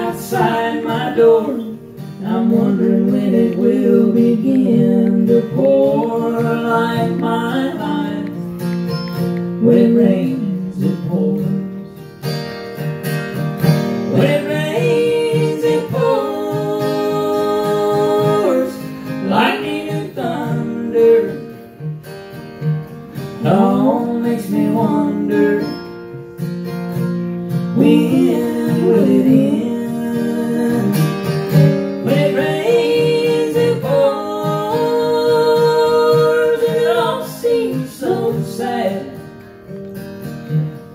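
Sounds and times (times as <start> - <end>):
person singing: 0.0 - 8.5, 9.6 - 11.8, 14.1 - 21.6, 23.4 - 25.9, 27.7 - 31.4, 32.0 - 39.2
acoustic guitar strumming: 0.0 - 40.9.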